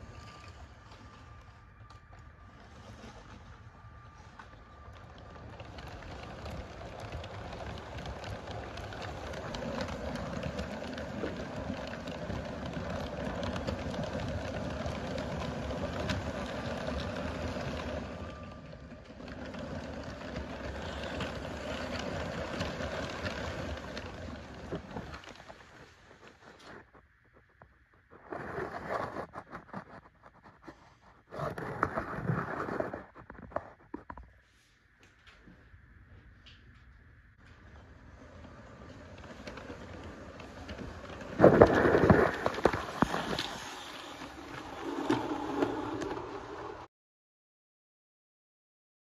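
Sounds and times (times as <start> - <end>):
toy train humming: 0.0 - 26.7
toy train wheels clicking on track: 5.0 - 25.4.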